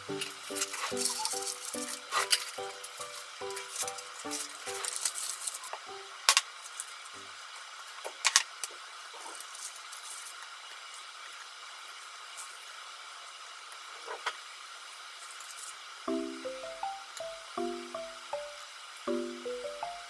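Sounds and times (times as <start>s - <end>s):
music: 0.0s - 5.2s, 5.8s - 6.3s, 16.1s - 20.0s
steady hiss: 0.0s - 20.0s.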